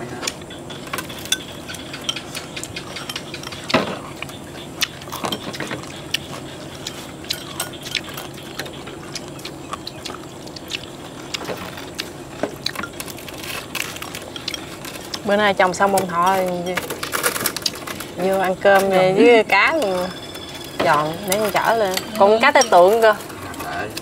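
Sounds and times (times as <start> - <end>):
chopsticks clinking on bowls: 0.7 - 3.8, 4.9 - 9.9, 19.6 - 24.0.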